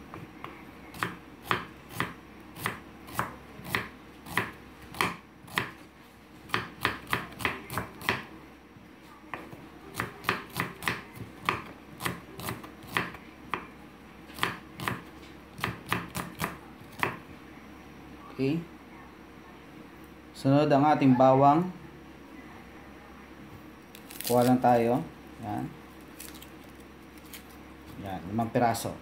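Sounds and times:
knife slicing onion: 0.9 - 5.8, 6.5 - 8.3, 9.9 - 13.7, 14.4 - 17.2.

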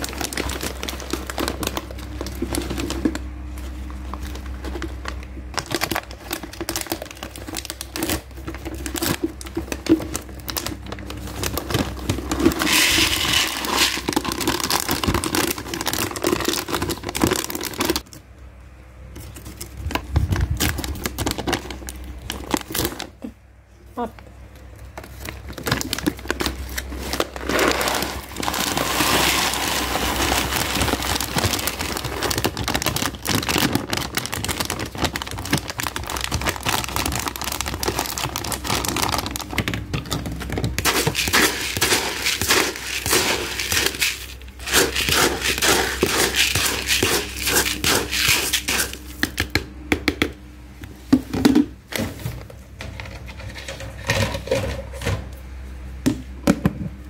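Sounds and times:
plastic bag crinkling: 0.0 - 18.1, 19.2 - 23.2, 24.7 - 49.2
dry kibble rattling into plastic tub: 5.6 - 18.0, 25.1 - 49.3.

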